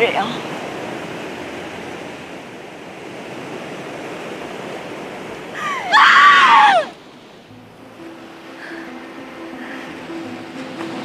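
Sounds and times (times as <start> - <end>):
waves breaking on beach: 0.0 - 11.0
loud high cry: 5.6 - 6.9.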